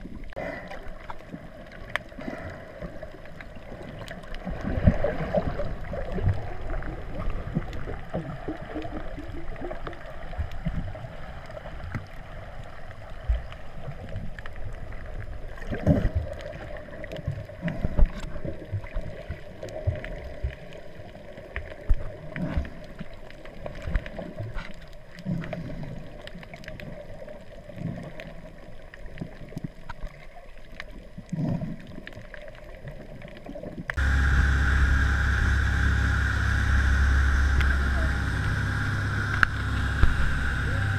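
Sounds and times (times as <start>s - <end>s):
underwater water wash: 0.0s - 40.9s
motorboat running: 34.0s - 40.9s.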